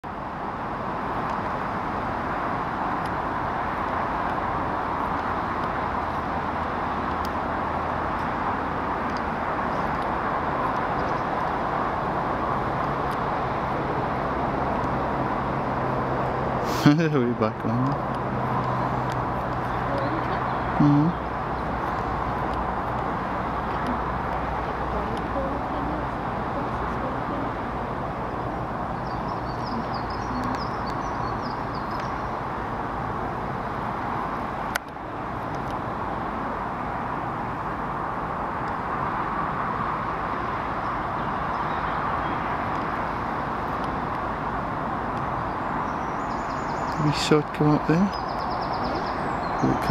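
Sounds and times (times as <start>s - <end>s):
distant road traffic: 0.0s - 49.9s
low engine hum: 0.0s - 49.9s
small bird chirping: 29.0s - 32.3s.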